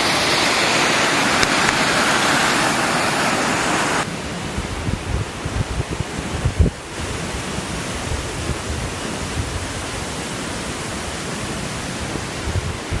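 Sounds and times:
waterfall roaring: 0.0 - 4.5
wind rumble on microphone: 0.0 - 13.0.

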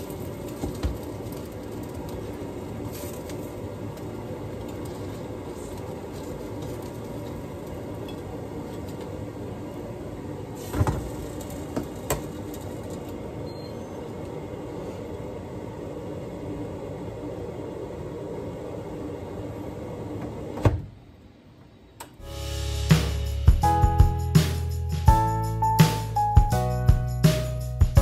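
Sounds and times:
fish sizzling in oil: 0.0 - 7.3.

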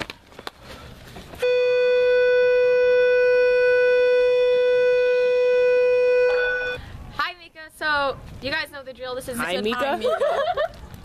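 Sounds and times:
long steady beep: 1.4 - 6.8.

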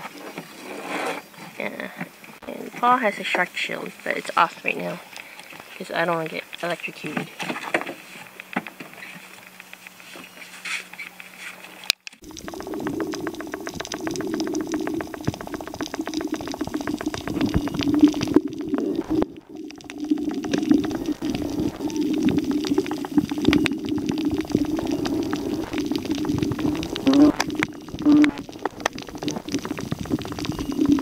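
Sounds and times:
underwater bubbling and clicks: 4.6 - 7.1, 8.3 - 10.1, 11.2 - 31.0.

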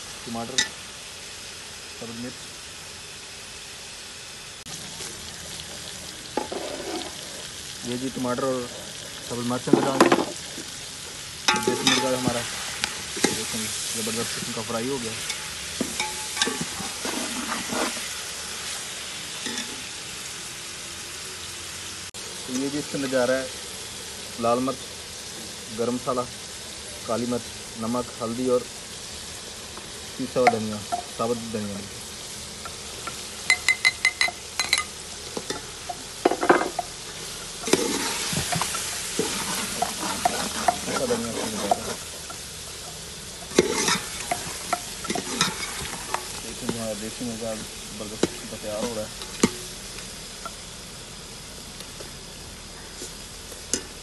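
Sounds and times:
chicken sizzling in a pot: 0.0 - 54.0
metal spoon scraping a pot: 6.4 - 7.5, 36.4 - 46.4.

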